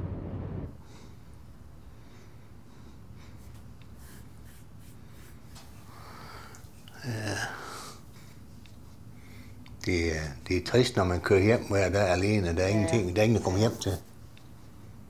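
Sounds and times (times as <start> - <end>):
man breathing faintly: 0.8 - 4.3, 5.0 - 9.7
man sighing heavily: 6.9 - 8.0.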